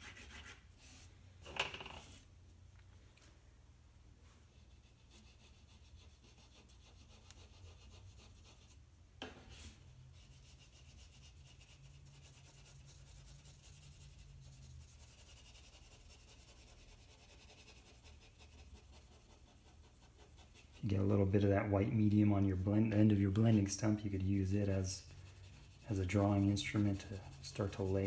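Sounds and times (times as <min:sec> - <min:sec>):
blending stump rubbing on paper: 0:09.6 - 0:28.0.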